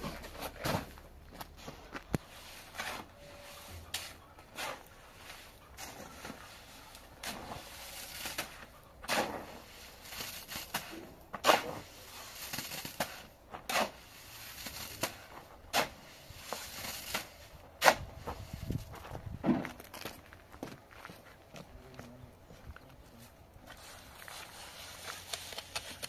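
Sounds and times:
shovel scraping wet mortar: 2.2 - 18.7, 23.8 - 26.0.

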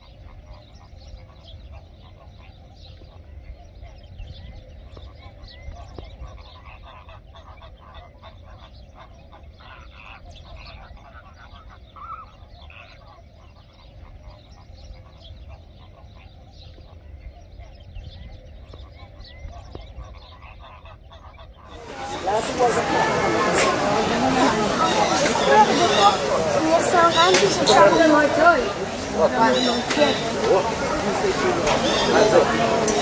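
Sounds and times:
flamingos honking: 18.8 - 33.0.

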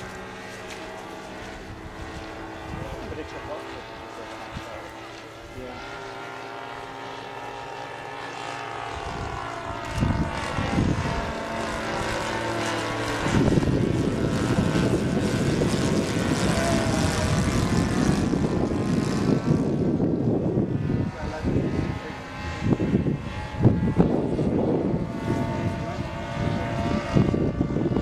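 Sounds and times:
model plane engine overhead: 0.0 - 28.0
heavy low rumble: 13.1 - 28.0.

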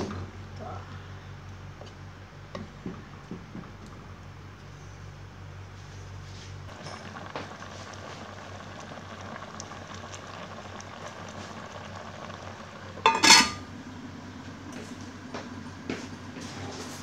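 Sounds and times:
curry bubbling in pot: 6.7 - 15.2
metal lid clattering on pot: 13.0 - 13.6.

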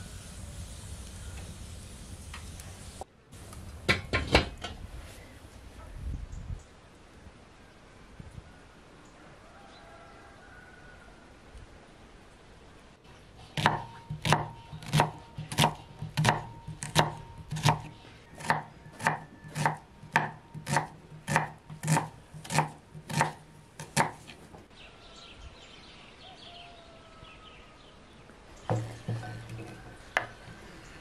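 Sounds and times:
knife chopping on wooden board: 13.6 - 24.4.

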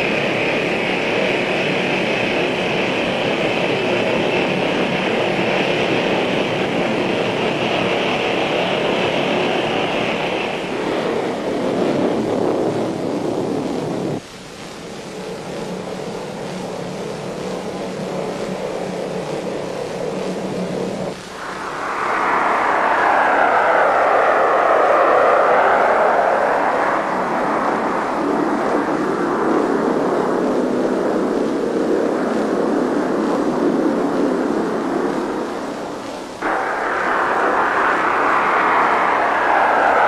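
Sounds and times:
jet engine whine and roar: 0.0 - 40.0
jet rumble: 0.0 - 40.0.

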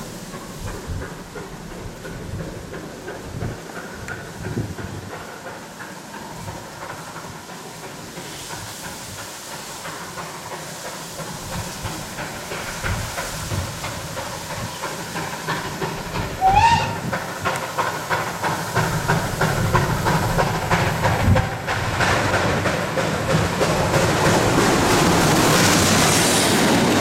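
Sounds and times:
steam locomotive exhaust beats: 0.0 - 27.0
steam whistle blast: 16.4 - 17.1.

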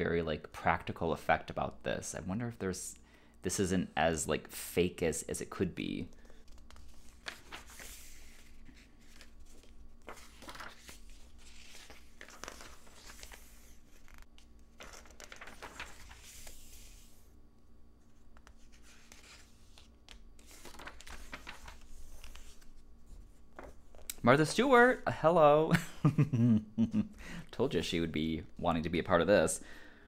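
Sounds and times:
magazine pages turning: 5.9 - 17.4, 18.1 - 25.0.

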